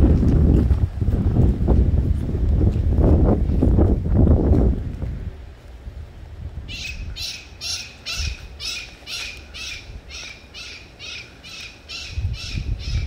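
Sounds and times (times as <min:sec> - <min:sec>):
wind on microphone: 0:00.0 - 0:10.3, 0:11.9 - 0:13.0
bird squawking: 0:06.7 - 0:13.0.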